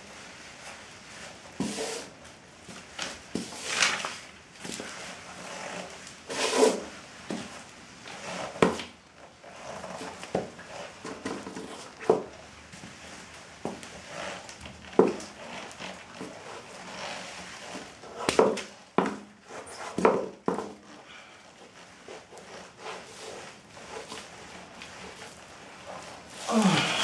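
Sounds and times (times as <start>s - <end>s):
newspaper rustling: 2.7s - 5.0s.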